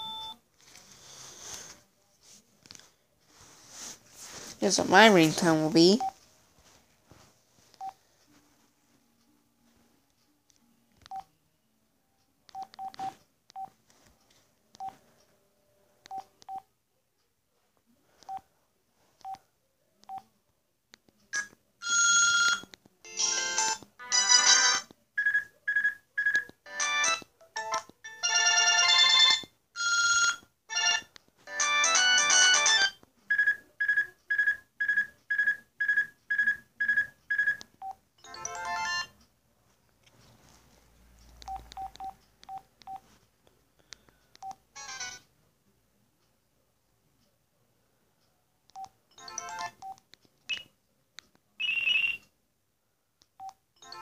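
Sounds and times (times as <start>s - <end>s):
electronic ringtone melodies: 0.0s - 0.4s, 21.8s - 24.8s, 26.7s - 37.6s, 38.2s - 39.2s, 49.2s - 49.8s, 53.8s - 54.0s
phone keypad beeping: 0.0s - 0.4s, 31.9s - 39.2s.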